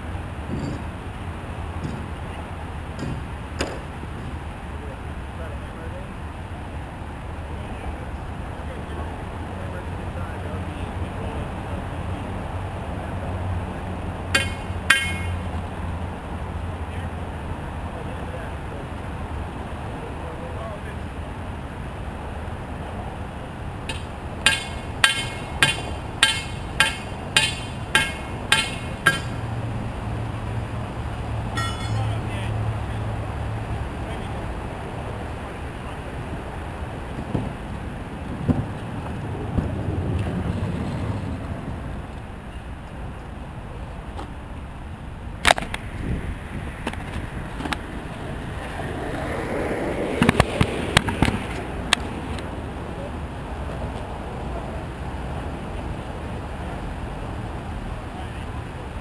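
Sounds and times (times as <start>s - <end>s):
hammer striking with ringing clink: 14.4s - 15.4s, 23.9s - 29.4s, 31.6s - 32.2s
skateboard clacking on ground: 31.5s - 32.2s, 48.5s - 52.5s
skateboard wheels rolling on asphalt: 33.2s - 59.0s.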